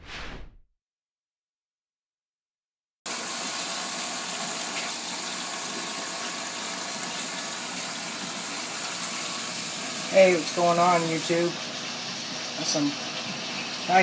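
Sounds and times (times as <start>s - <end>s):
water rushing in aquarium: 3.1s - 14.0s.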